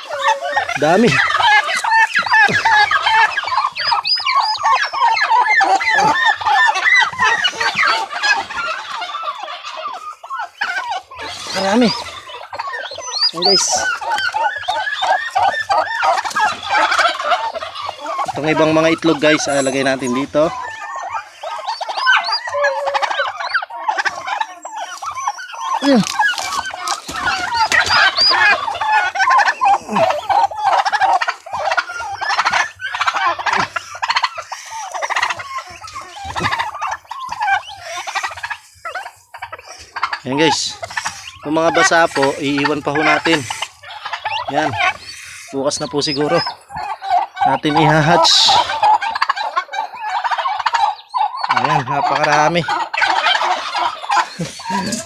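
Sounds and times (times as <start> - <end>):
adult turkey call: 0.0 - 55.0
turkey poults peeping: 0.0 - 55.0
straw rustling: 24.9 - 45.6, 53.6 - 55.0.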